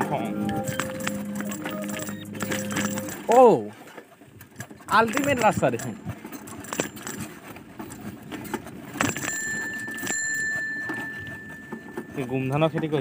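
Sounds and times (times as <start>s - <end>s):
bicycle rattling on rough path: 0.0s - 13.0s
bicycle bell ringing: 0.3s - 3.5s, 9.0s - 12.6s.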